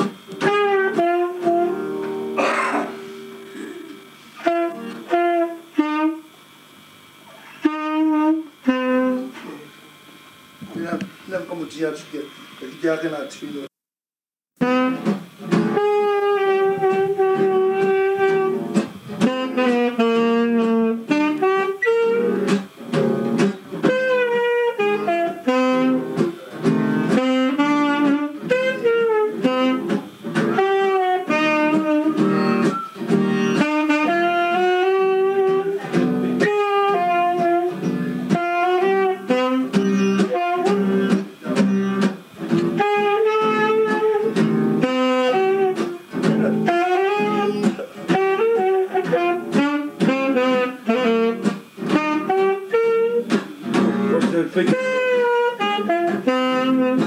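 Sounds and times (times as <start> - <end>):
reed wind instrument melody: 0.4 - 2.4, 3.0 - 6.3, 7.6 - 9.3, 14.6 - 22.6, 23.8 - 57.0
fiddle playing: 30.6 - 35.8.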